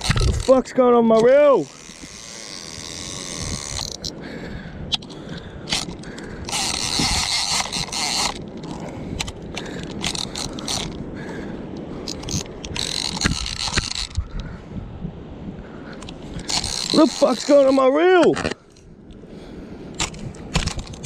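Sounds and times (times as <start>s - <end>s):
fishing reel ratcheting and clicking: 1.2s - 4.1s, 4.9s - 11.0s, 12.0s - 14.2s, 16.4s - 17.8s
harsh mechanical grinding: 5.7s - 8.8s, 12.2s - 14.2s, 16.4s - 17.8s.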